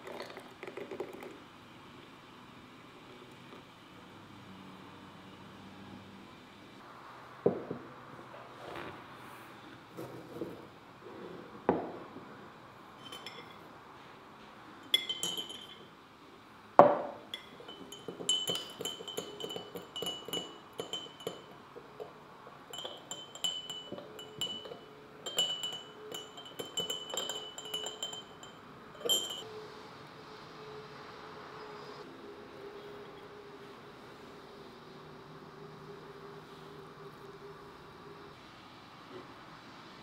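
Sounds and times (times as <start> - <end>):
teaspoon clinking in tea glass: 13.0 - 13.7, 14.8 - 15.9, 17.2 - 29.5
crockery knocking on table: 16.8 - 17.2.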